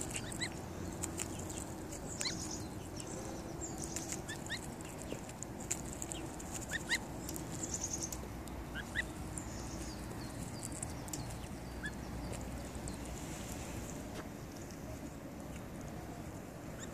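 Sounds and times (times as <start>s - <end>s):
goslings peeping: 0.0s - 16.9s.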